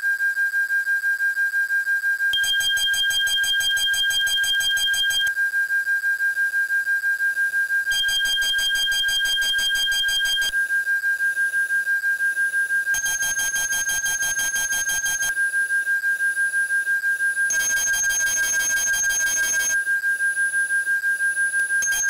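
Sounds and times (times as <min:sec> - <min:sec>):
high electronic alarm tone: 0:17.5 - 0:19.8.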